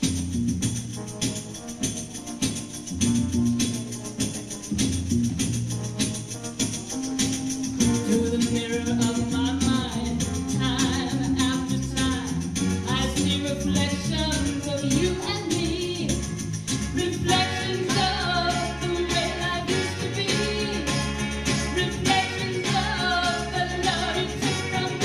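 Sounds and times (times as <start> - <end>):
instrumental accompaniment with bass: 0.0 - 25.0
woman singing into a microphone: 8.0 - 16.3, 17.0 - 25.0.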